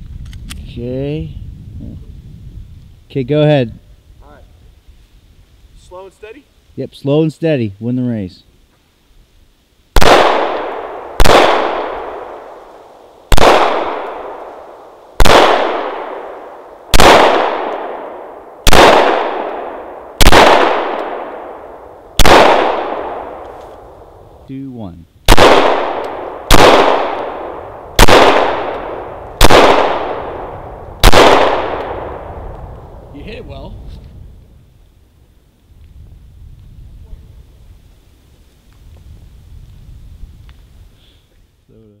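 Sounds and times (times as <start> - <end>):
pistol shots: 10.0 - 12.5, 13.3 - 23.6, 25.3 - 32.4.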